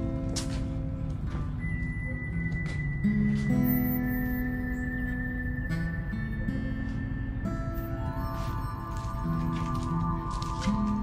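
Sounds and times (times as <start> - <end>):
background music with held notes: 0.0 - 11.0.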